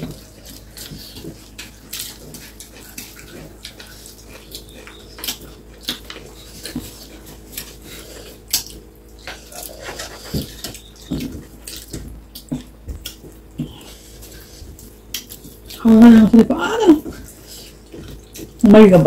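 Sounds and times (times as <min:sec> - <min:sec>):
wet mouth smacking and chewing: 0:00.0 - 0:15.9, 0:17.0 - 0:18.6.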